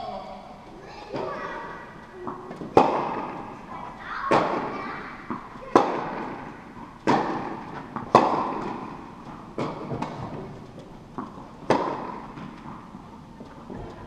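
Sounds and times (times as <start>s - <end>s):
tennis ball bouncing on court: 2.2s - 3.6s, 4.2s - 13.8s
tennis ball hit by rackets: 2.2s - 3.6s, 4.3s - 13.0s.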